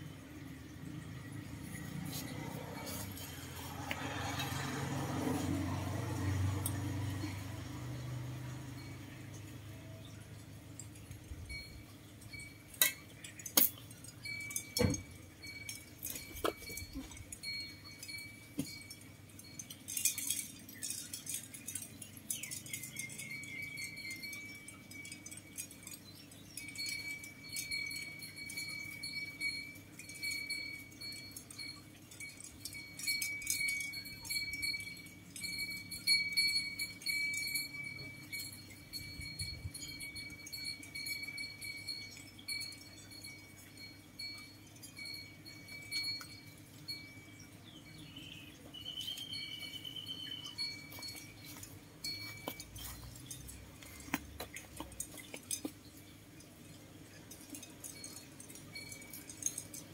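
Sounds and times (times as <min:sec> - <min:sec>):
rustling of pots and soil: 0:00.0 - 0:59.9
high-pitched ringing tone: 0:26.3 - 0:53.5.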